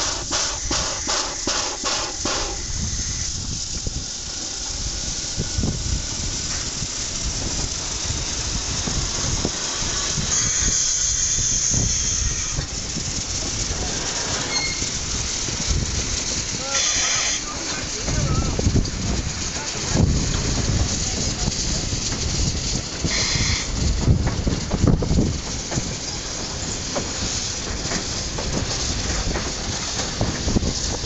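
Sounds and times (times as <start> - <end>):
wagons rumbling and clattering: 0.0 - 10.5, 11.7 - 31.0
steam locomotive hissing pulses: 0.0 - 31.0
high wheel squeal: 10.0 - 12.8, 13.8 - 15.1, 16.6 - 18.6, 23.0 - 23.7.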